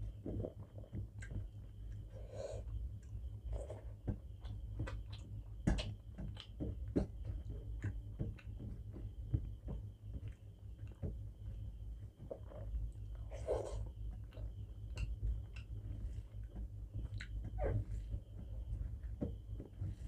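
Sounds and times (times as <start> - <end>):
low steady hum: 0.0 - 20.0
chewing squelches: 0.4 - 6.6, 12.2 - 17.8.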